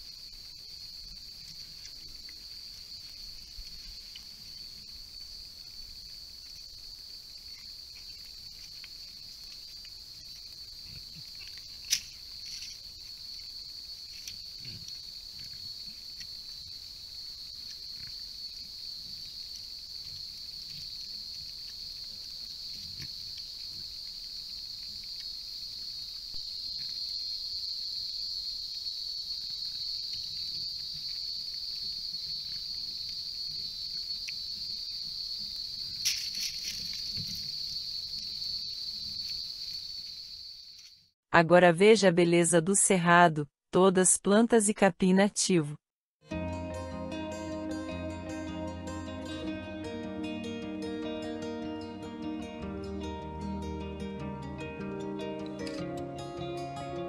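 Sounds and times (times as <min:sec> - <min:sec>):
high-pitched insect chorus: 0:00.0 - 0:41.1.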